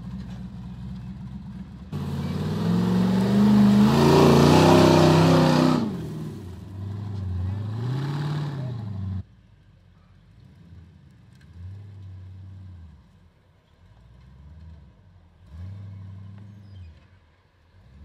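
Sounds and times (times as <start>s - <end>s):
truck engine revving: 1.9s - 9.2s.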